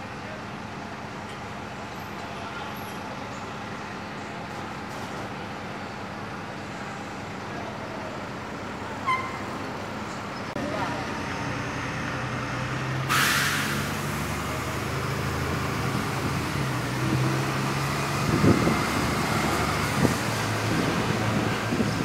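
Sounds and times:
bus engine humming: 0:00.0 - 0:22.0
road and traffic noise: 0:00.0 - 0:22.0
hiss: 0:13.1 - 0:14.1.

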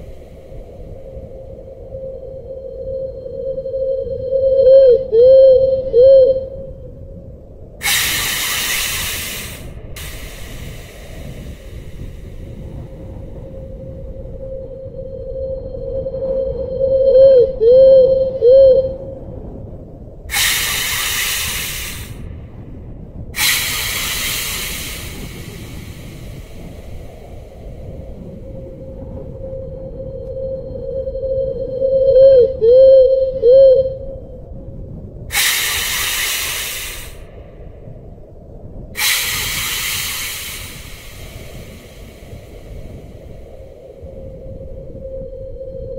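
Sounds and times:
steady low rumble: 0:00.0 - 0:45.9
swooping whistle-like tone: 0:00.8 - 0:06.7, 0:07.8 - 0:12.1, 0:13.3 - 0:19.1, 0:20.3 - 0:22.1, 0:23.4 - 0:27.3, 0:28.2 - 0:34.2, 0:35.3 - 0:37.1, 0:39.0 - 0:42.5, 0:44.0 - 0:45.9
long hisses: 0:07.8 - 0:13.6, 0:20.3 - 0:22.3, 0:23.4 - 0:28.3, 0:35.3 - 0:37.4, 0:39.0 - 0:43.8.

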